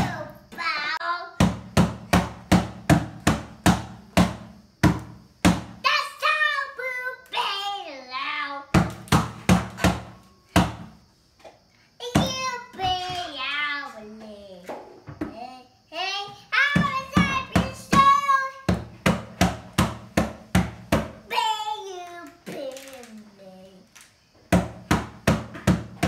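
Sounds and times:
child singing in a high voice: 0.0s - 1.4s, 5.8s - 8.8s, 12.0s - 18.8s, 21.3s - 23.9s
hands slapping a plastic bin: 1.4s - 5.8s, 8.8s - 11.0s, 16.8s - 21.2s, 24.5s - 26.0s.

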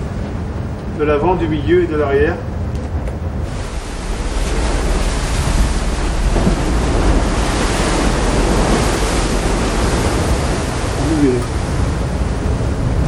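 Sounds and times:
low rumble: 0.0s - 13.0s
wind: 0.0s - 13.0s
sea water rushing: 3.2s - 13.0s.

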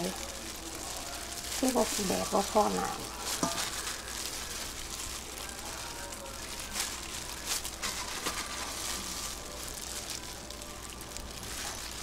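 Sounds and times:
plastic gloves rustling: 0.0s - 12.0s
wet squishing of food mixed by hand: 0.0s - 12.0s.

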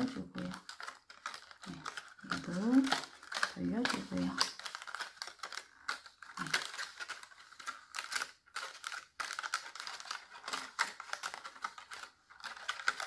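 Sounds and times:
plastic strips crinkling and clicking: 0.0s - 13.0s.

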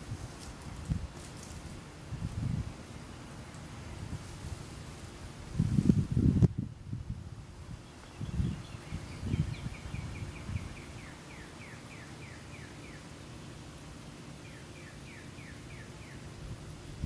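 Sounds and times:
plants rustling: 0.0s - 6.6s.

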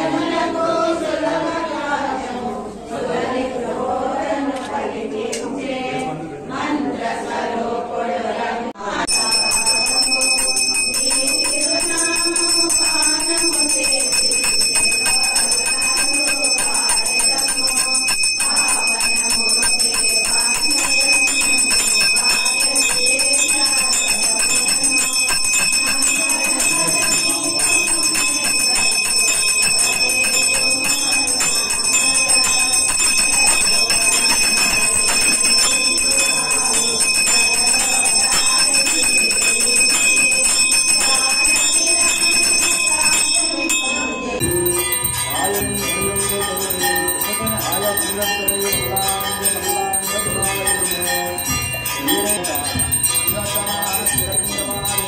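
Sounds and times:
person chanting: 9.0s - 55.0s
hand bell rung rapidly: 9.1s - 55.0s.

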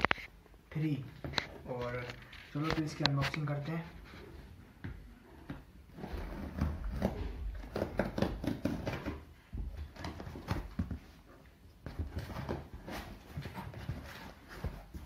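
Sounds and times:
tape and cardboard rustling: 5.5s - 15.0s.

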